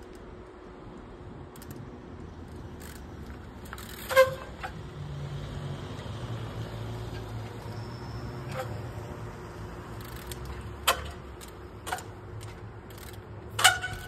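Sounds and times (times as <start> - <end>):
bike brake squealing: 3.7 - 4.8, 7.1 - 9.3, 12.9 - 14.0.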